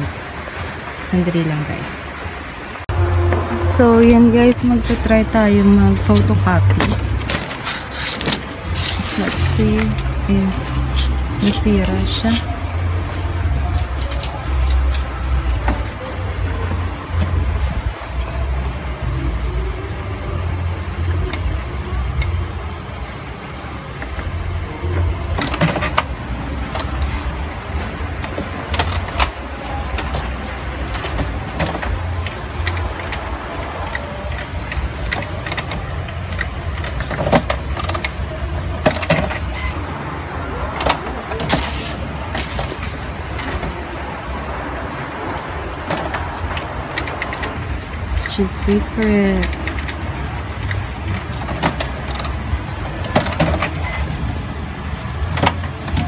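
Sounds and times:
printer mechanism clicks and clacks: 24.0 - 39.8, 40.6 - 43.8, 45.4 - 54.3.

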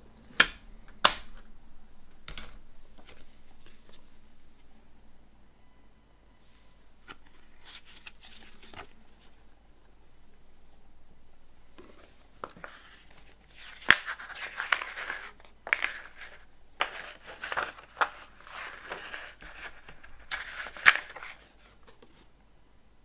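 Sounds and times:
paper pages rustling: 2.9 - 4.8, 7.0 - 9.5, 11.8 - 22.3.

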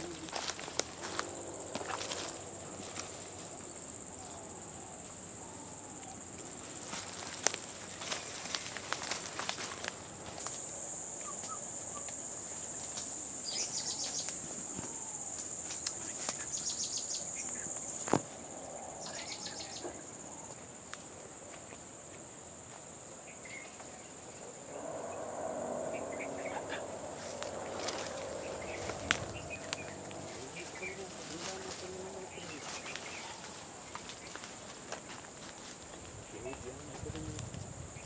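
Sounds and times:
footsteps in dry undergrowth: 0.0 - 3.8, 6.4 - 10.7, 25.9 - 37.2
high-pitched insect drone: 0.0 - 21.0, 23.2 - 38.0
insect trills: 0.0 - 38.0.

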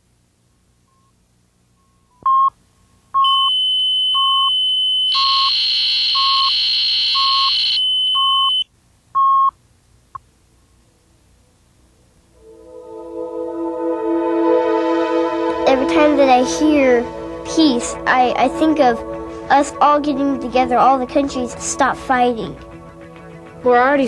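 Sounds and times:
loud high-pitched steady tone: 12.4 - 24.0.

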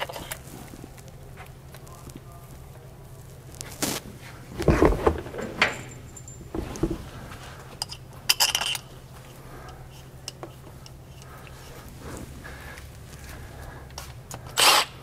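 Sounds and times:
metal clinks and rattles: 4.6 - 9.0.

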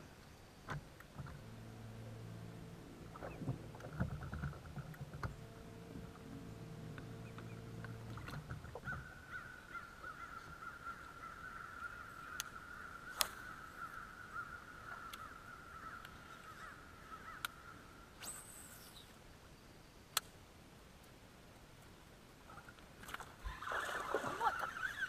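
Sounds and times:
electric trolling motor humming: 0.7 - 9.8, 23.4 - 25.0
high-pitched wildlife chorus: 23.5 - 25.0.

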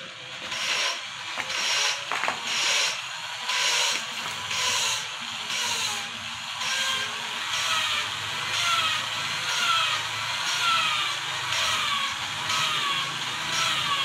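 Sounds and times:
gritty metal rubbing with squeal: 0.4 - 14.0.

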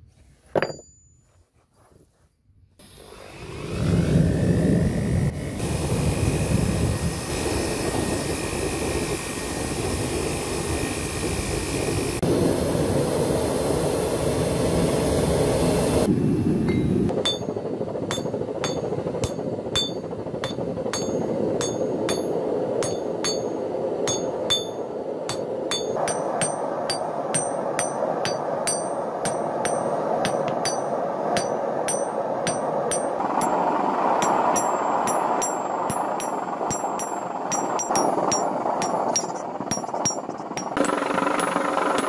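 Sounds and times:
hammer striking steel on anvil: 0.5 - 1.2, 16.7 - 33.6, 34.2 - 42.0
forge burner rushing: 17.1 - 42.0.

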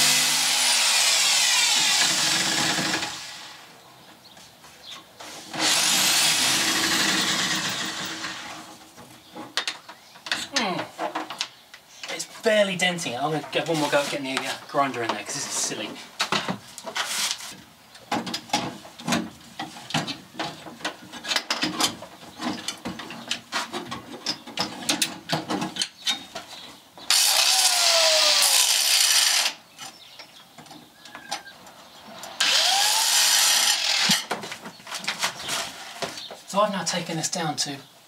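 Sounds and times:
angle grinder running: 0.0 - 3.6, 5.6 - 8.5, 27.1 - 29.6, 32.4 - 34.2.

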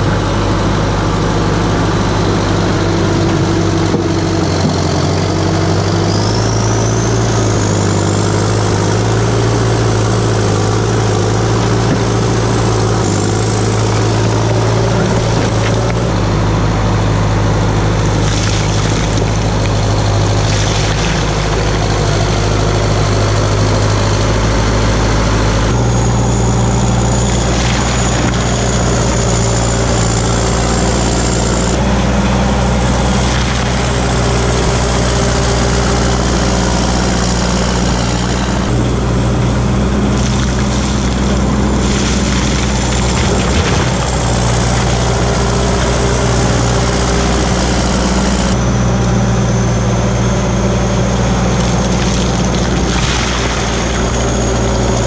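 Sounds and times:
diesel engine running: 0.0 - 55.0
high whine: 0.0 - 55.0.

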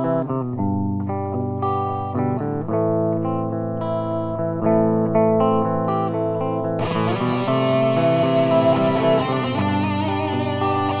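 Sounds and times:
clean electric guitar: 0.0 - 11.0.

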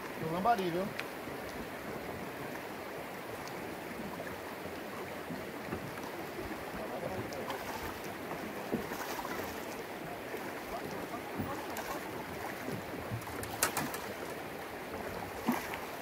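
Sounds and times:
river current rushing: 0.0 - 16.0.

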